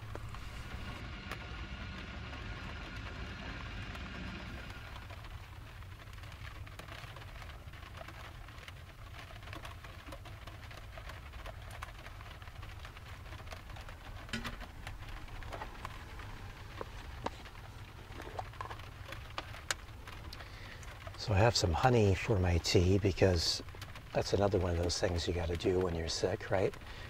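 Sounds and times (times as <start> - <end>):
steady low hum: 0.0 - 7.4, 11.6 - 27.0
rain tapping on metal roof: 0.0 - 27.0
metal kettle set down: 14.3 - 14.6.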